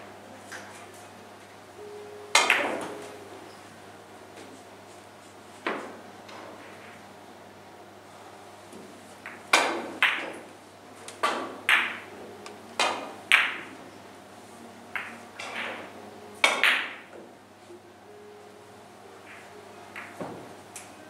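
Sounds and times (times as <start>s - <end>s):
billiard balls clacking: 2.4s - 3.1s, 9.2s - 13.8s, 14.9s - 17.3s.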